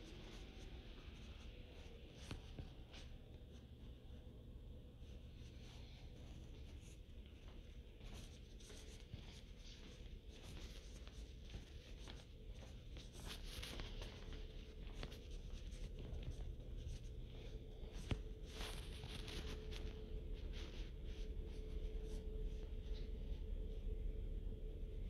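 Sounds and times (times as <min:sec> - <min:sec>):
faint steady hum: 0:00.0 - 0:25.0
footsteps on tiled floor: 0:05.3 - 0:23.6.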